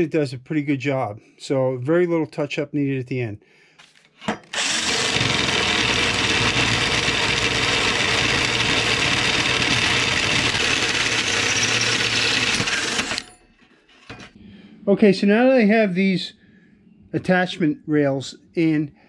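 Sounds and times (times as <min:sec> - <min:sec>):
hole saw grinding through steel: 0:04.4 - 0:14.4
drill motor hum: 0:04.5 - 0:13.4.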